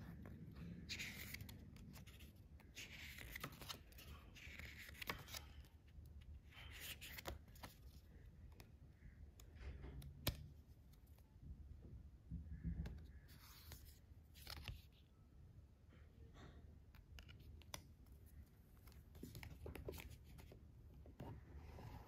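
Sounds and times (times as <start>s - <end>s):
paper pages rustling: 0.2s - 5.6s, 13.1s - 15.0s.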